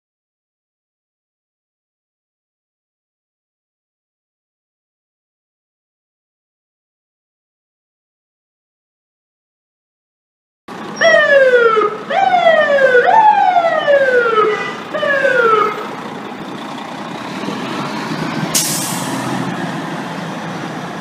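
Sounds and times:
fire truck engine running: 10.7 - 21.0
fire engine siren whooping: 10.8 - 16.4
short hiss: 18.6 - 19.3.

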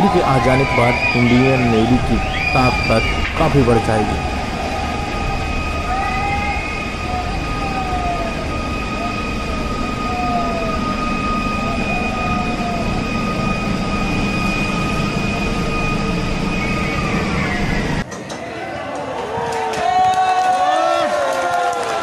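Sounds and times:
crowd shouting: 0.0 - 10.4, 16.6 - 22.0
falling whistle-like calls: 0.0 - 18.0
loud rumbling: 0.0 - 18.0
siren long high note: 0.0 - 18.0.

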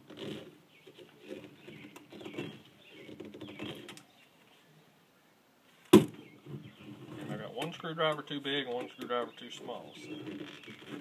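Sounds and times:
sharp loud knock: 5.9 - 6.2.

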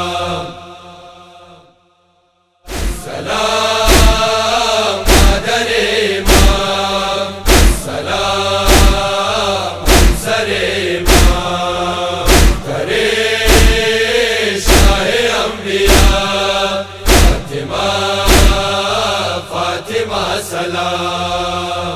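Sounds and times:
person chanting lament: 0.0 - 1.7, 2.9 - 21.9
heavy deep beat: 3.9 - 5.6, 6.2 - 6.8, 7.4 - 8.0, 8.7 - 9.2, 9.8 - 10.4, 11.0 - 11.6, 12.3 - 12.9, 13.5 - 14.0, 14.7 - 15.2, 15.9 - 16.4, 17.0 - 17.7, 18.3 - 18.8.

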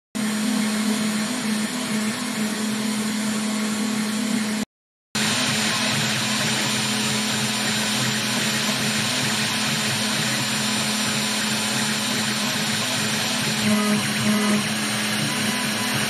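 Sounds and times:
spindle motor humming: 10.2 - 16.0.

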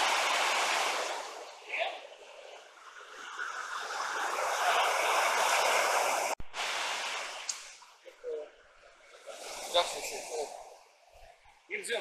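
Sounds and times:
river rapids rushing over boulders: 0.0 - 1.8.

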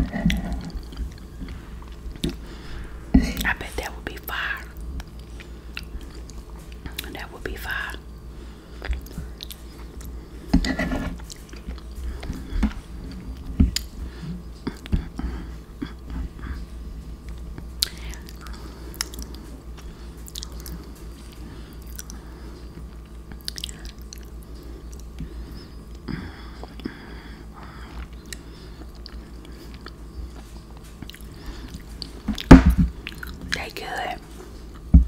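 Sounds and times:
chewing soft food: 0.0 - 2.7, 4.7 - 7.2, 8.6 - 34.9
wet mouth clicks and smacks: 8.8 - 10.1, 17.3 - 19.4, 20.2 - 20.8, 21.8 - 22.2, 23.3 - 24.3.

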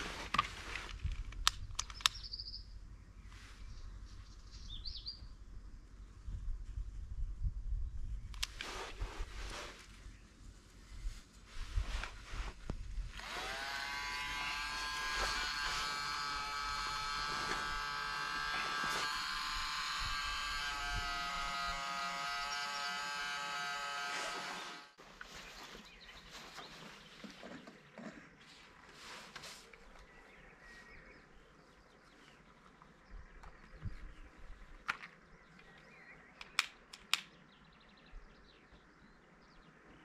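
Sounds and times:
electric blower whining: 13.0 - 25.0.

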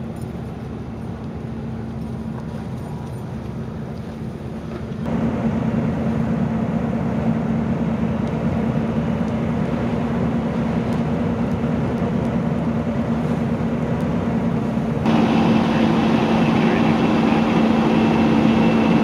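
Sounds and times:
diesel engine humming: 0.0 - 19.0
rushing noise of fire: 5.0 - 19.0.

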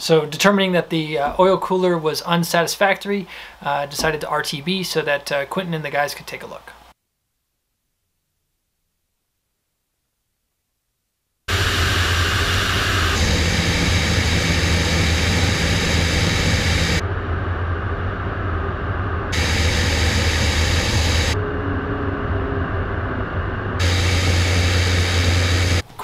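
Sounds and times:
aircraft propeller engine drone: 11.5 - 25.8.

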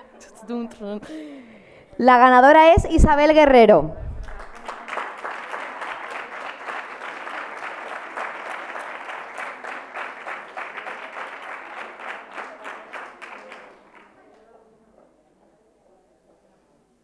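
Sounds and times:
audience applauding: 4.2 - 14.2.

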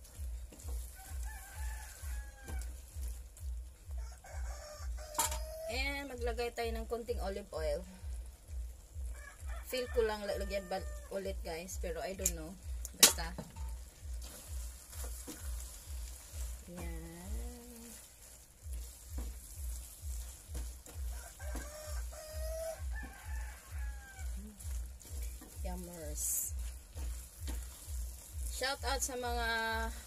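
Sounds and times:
spatula stirring pasta in pan: 0.0 - 5.6, 12.2 - 30.0
soft sizzle: 0.0 - 30.0
low pulsing throb: 5.7 - 30.0.

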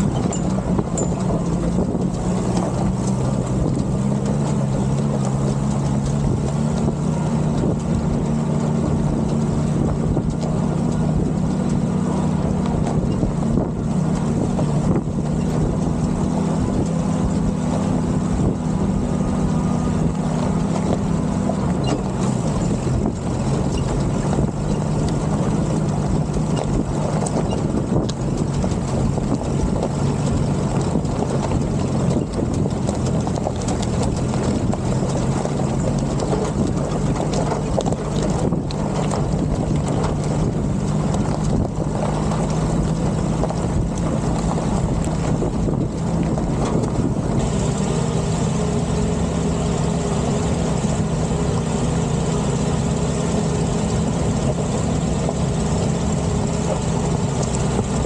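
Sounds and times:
jeep engine under load: 0.0 - 58.0
knocks and rattles: 0.0 - 58.0.

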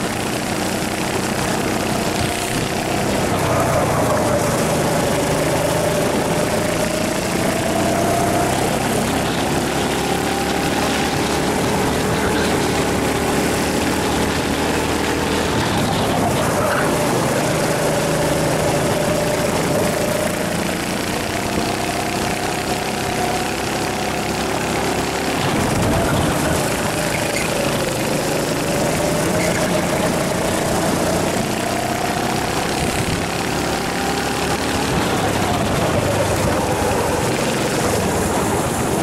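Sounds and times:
kart engine running: 0.0 - 39.0
wind rush on microphone: 13.8 - 22.4, 25.3 - 28.0, 29.1 - 33.6, 34.8 - 39.0.

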